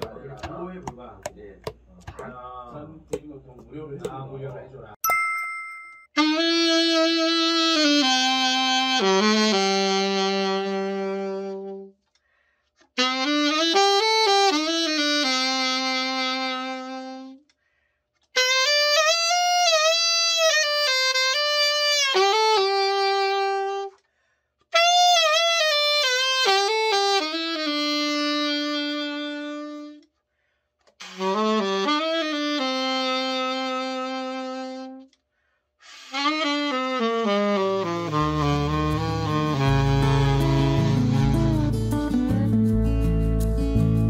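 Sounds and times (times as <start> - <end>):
alto saxophone phrases: 6.2 - 12.0, 13.0 - 17.5, 18.4 - 24.0, 24.8 - 30.1, 31.0 - 35.1, 35.9 - 42.5.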